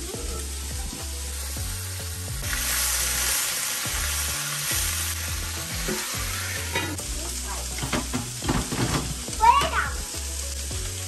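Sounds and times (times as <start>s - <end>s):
fish and onions sizzling in butter: 0.0s - 11.0s.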